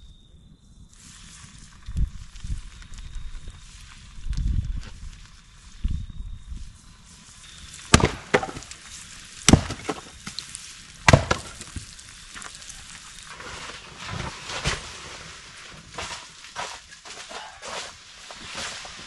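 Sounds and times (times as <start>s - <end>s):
wood splitting knock: 7.9s - 8.7s, 9.5s - 10.1s, 11.0s - 11.7s
axe striking firewood: 7.9s - 8.8s, 9.4s - 10.4s, 11.0s - 11.9s.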